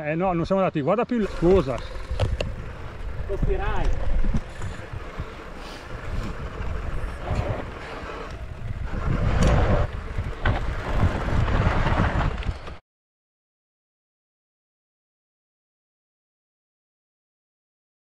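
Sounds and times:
bike rolling on rough ground: 0:01.1 - 0:12.8
wind buffeting microphone: 0:01.2 - 0:12.8.

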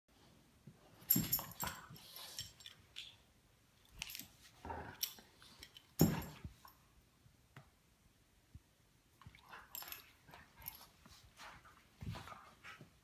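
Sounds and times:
collar tags jingling: 0:01.0 - 0:03.2, 0:09.5 - 0:11.0
dogs mouthing and scuffling: 0:09.2 - 0:13.0.

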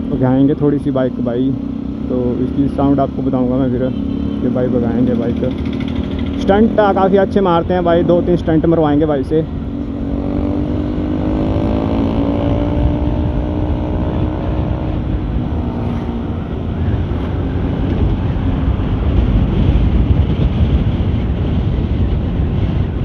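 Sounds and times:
scooter engine: 0:01.5 - 0:07.0
wind rumble on microphone: 0:04.4 - 0:23.0.

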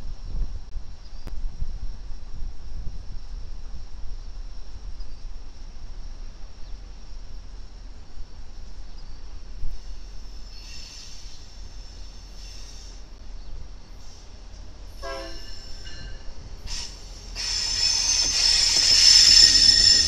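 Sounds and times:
diesel locomotives rumbling: 0:00.2 - 0:20.0
wheels squealing: 0:15.3 - 0:20.0.

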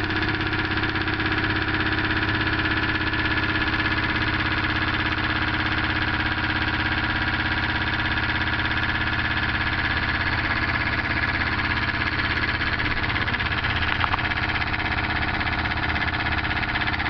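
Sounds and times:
small engine rattling and humming: 0:00.0 - 0:17.0.

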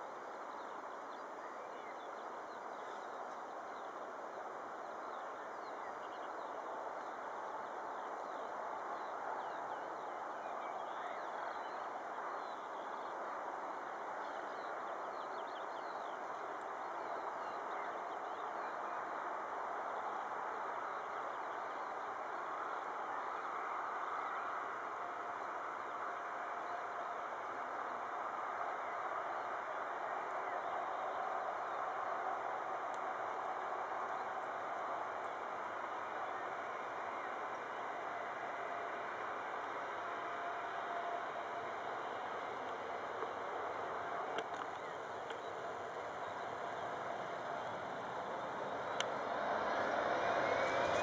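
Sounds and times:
faint engine whine: 0:00.0 - 0:51.0
birds chirping: 0:40.7 - 0:51.0.

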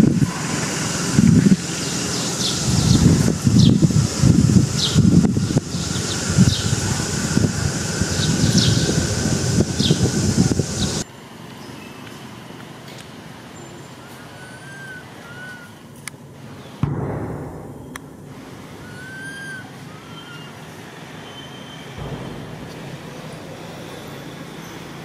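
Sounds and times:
outdoor background rumble: 0:00.0 - 0:25.0
short whistled chirps: 0:13.6 - 0:15.7, 0:18.8 - 0:20.5
burst of low noise: 0:16.8 - 0:20.5, 0:22.0 - 0:24.1.

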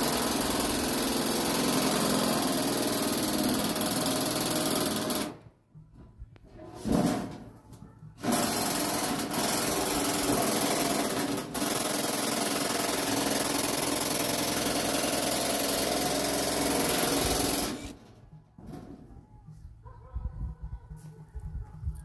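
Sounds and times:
power tool running: 0:00.0 - 0:05.4, 0:08.2 - 0:18.0.

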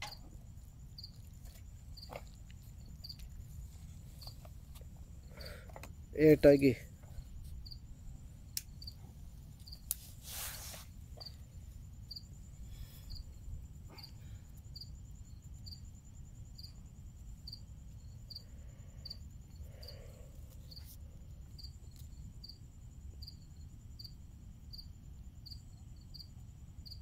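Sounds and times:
crickets chirping: 0:00.0 - 0:27.0
high insect trill: 0:00.0 - 0:27.0.

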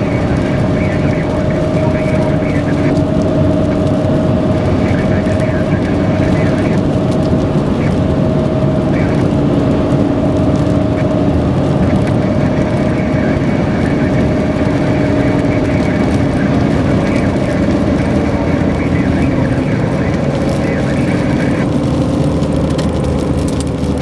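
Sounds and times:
vehicle road and engine noise: 0:00.0 - 0:24.0.

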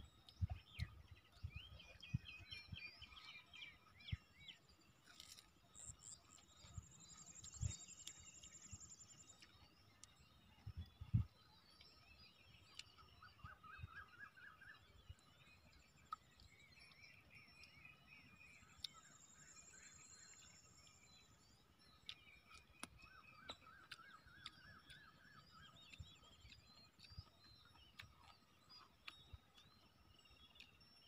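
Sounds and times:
birds chirping faintly: 0:00.0 - 0:31.0.

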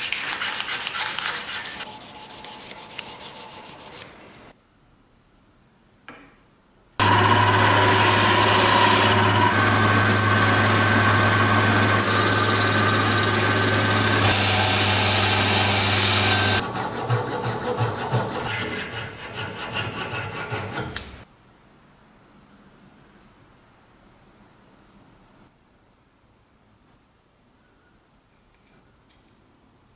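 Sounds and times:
hand saw cutting wood: 0:00.0 - 0:04.0, 0:07.0 - 0:21.1
wood lathe motor hum: 0:07.0 - 0:18.4
turning tool cutting wood: 0:07.0 - 0:20.9.

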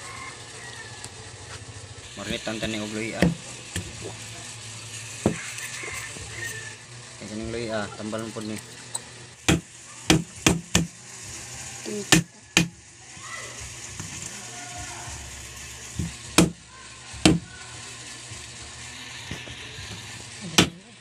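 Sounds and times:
knife chopping on wooden board: 0:03.2 - 0:03.9, 0:09.5 - 0:10.9, 0:16.0 - 0:16.6.

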